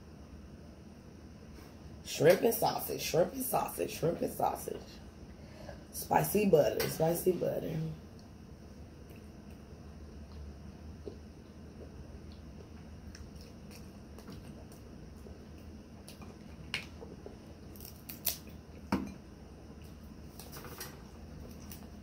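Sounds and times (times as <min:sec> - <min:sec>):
crab shells cracking: 0:17.7 - 0:18.6.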